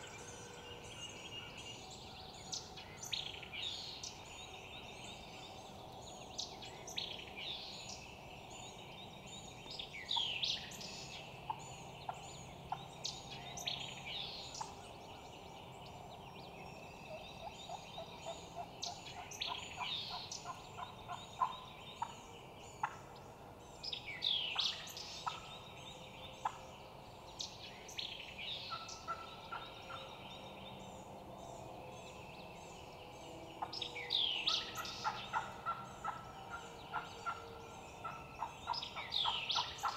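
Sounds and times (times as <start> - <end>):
songbirds chirping and whistling: 0.0 - 39.9
turkey gobbling: 35.0 - 36.2.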